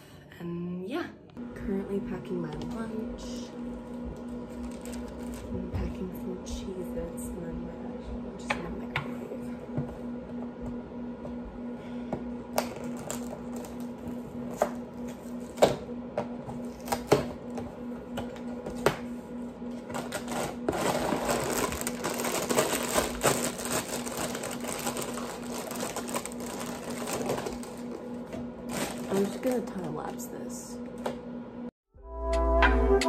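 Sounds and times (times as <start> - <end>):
plastic snack packs crinkling: 4.3 - 5.5, 12.6 - 13.9, 19.9 - 28.1, 28.7 - 29.8.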